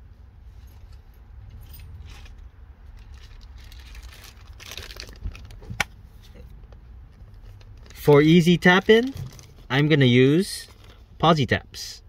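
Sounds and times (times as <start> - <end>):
low steady rumble: 0.0 - 12.0
plastic bag crinkling: 2.2 - 5.8, 7.3 - 9.7, 10.6 - 11.1.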